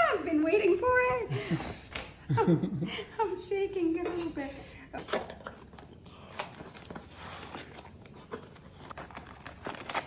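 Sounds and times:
cardboard and tape tearing: 6.2 - 10.0.

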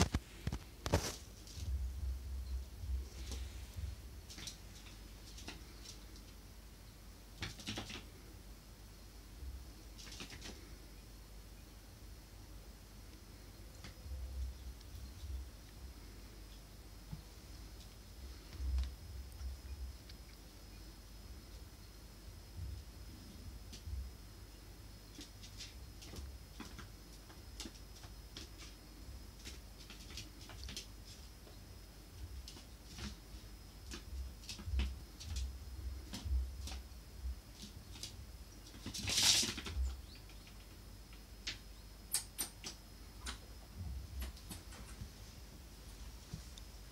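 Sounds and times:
squirrel claws pattering on floor: 0.0 - 1.8, 2.8 - 6.4, 25.1 - 31.6, 32.2 - 43.4.

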